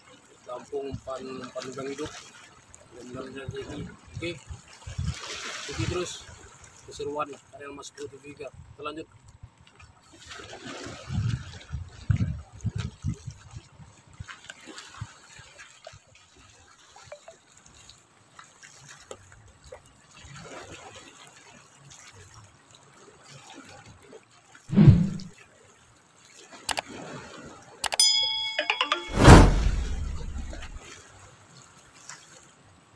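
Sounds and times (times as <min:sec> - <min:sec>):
small waves lapping against rocks: 0:00.0 - 0:24.7, 0:30.9 - 0:32.9
loud wave thump: 0:24.7 - 0:25.3, 0:29.0 - 0:30.8
short chiming sound effect: 0:27.9 - 0:30.8.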